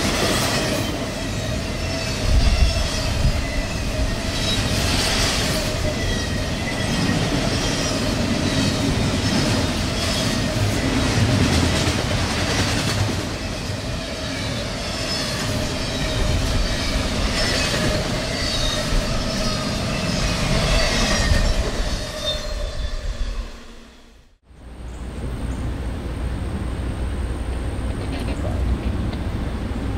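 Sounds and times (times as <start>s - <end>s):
train wheels rumbling on rail: 0.0s - 24.0s, 24.7s - 29.9s
high-pitched wheel squeals: 13.4s - 24.2s.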